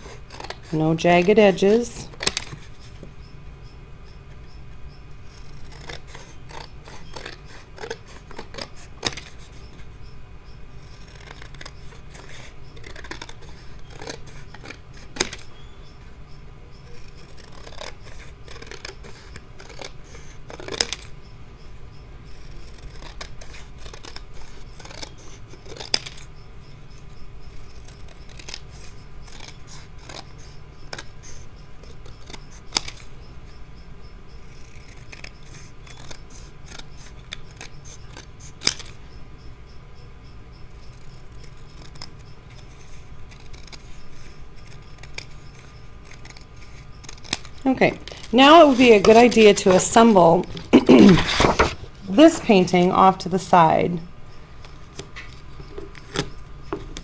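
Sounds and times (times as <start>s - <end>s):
scissors snipping paper: 0.0s - 2.8s, 5.3s - 9.6s, 10.8s - 15.5s, 16.9s - 21.1s, 22.3s - 26.3s, 27.5s - 31.2s, 31.8s - 33.1s, 34.5s - 39.0s, 40.8s - 52.4s
paper rustling: 46.1s - 52.6s.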